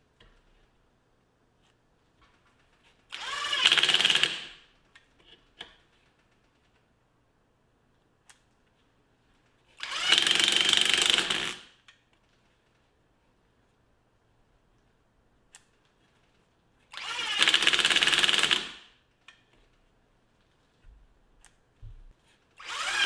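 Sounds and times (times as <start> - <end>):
impact driver driving screws: 3.1 - 4.6, 9.8 - 11.7, 17.0 - 18.8, 22.6 - 23.0.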